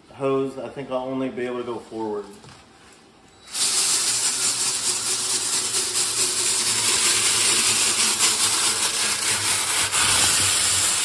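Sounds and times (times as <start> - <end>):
drill motor hum: 3.4 - 11.0
brush scrubbing foil hose: 3.5 - 11.0.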